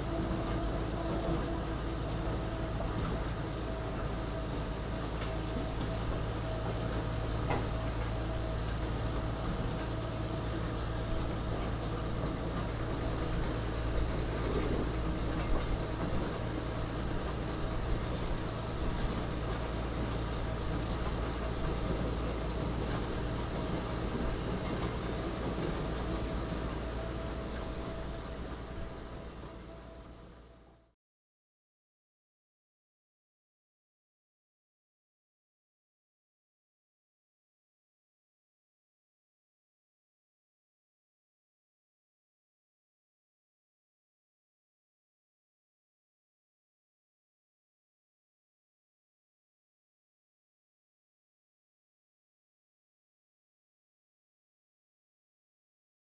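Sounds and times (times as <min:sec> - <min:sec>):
locomotive engine drone: 0:00.0 - 0:30.9.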